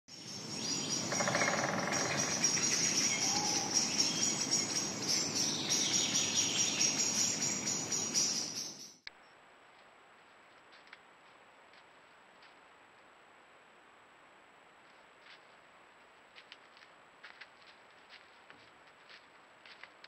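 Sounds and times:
birds calling: 0.1s - 9.0s
insects chirring: 0.2s - 9.0s.

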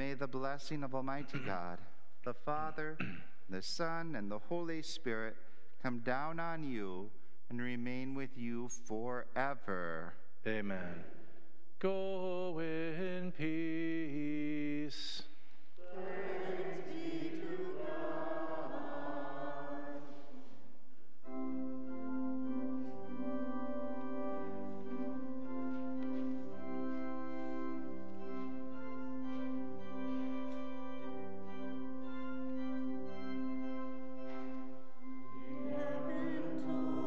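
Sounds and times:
singing voices: 15.8s - 20.5s, 35.4s - 37.0s
church organ playing sustained chords: 15.8s - 20.6s, 21.2s - 37.0s.

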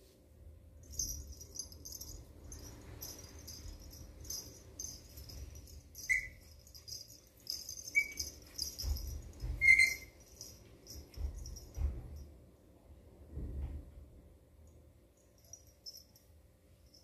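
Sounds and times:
puppy squeaking: 6.0s - 6.8s, 7.5s - 10.2s.

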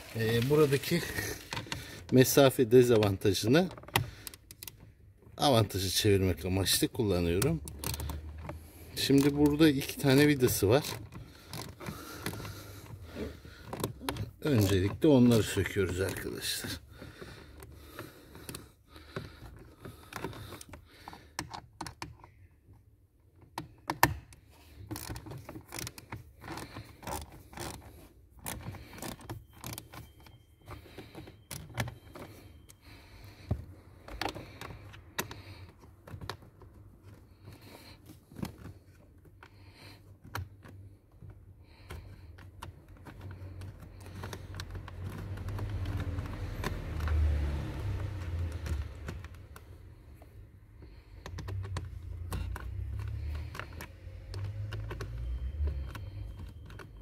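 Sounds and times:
hands handling hard plastic: 0.0s - 22.5s.

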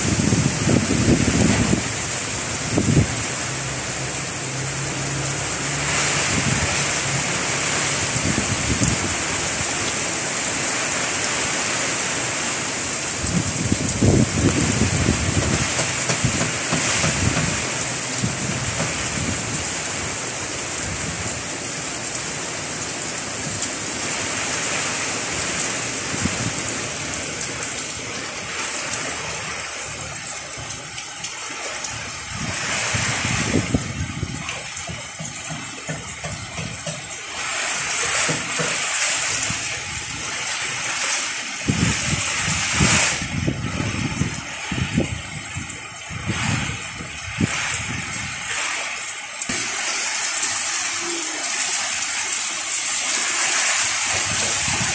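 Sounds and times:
wind buffeting microphone: 0.0s - 4.4s, 8.0s - 10.0s, 13.1s - 22.2s, 23.2s - 36.8s, 41.5s - 48.5s, 53.5s - 54.9s
strong wind: 0.0s - 5.0s, 5.8s - 35.2s, 39.2s - 49.6s, 52.7s - 54.9s
heavy rain: 0.0s - 54.9s.

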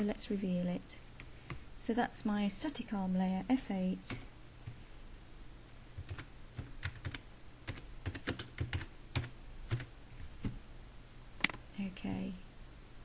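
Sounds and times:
keyboard typing clicks: 6.0s - 10.6s, 11.4s - 11.8s.

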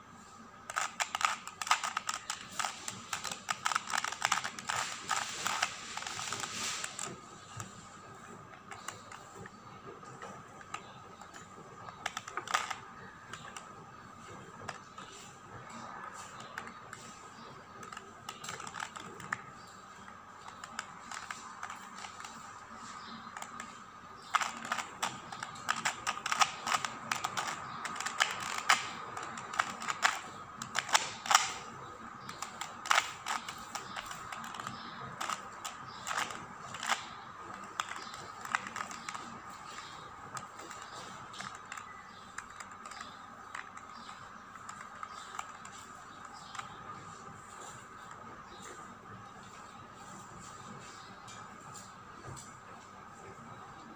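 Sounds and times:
faint steady hum: 0.0s - 53.9s
puzzle cube clicking as twisted: 0.6s - 7.8s, 10.2s - 13.8s, 16.3s - 46.9s.

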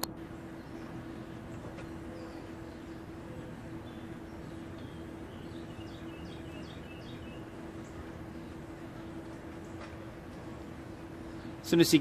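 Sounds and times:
low background hum: 0.0s - 12.0s
small bird chirping: 0.4s - 9.8s.

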